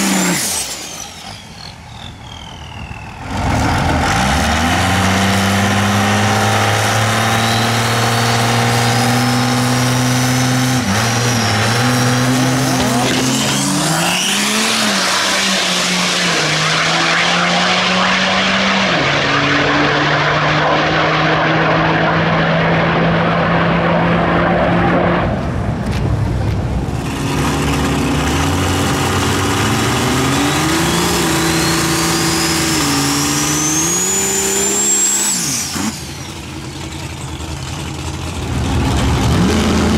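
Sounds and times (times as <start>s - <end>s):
turbo whine: 0.0s - 5.2s, 27.0s - 37.7s
diesel engine revving: 0.0s - 25.5s, 26.8s - 39.9s.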